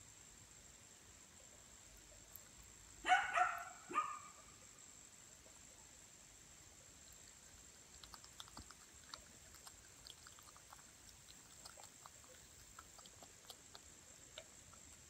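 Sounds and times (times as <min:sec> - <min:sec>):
animal chewing wet smacks: 0:07.2 - 0:15.0.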